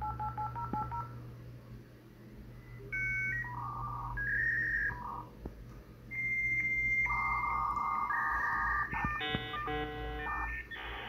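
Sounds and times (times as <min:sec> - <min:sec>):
electronic beeping tones: 0:02.6 - 0:05.3, 0:06.1 - 0:11.0.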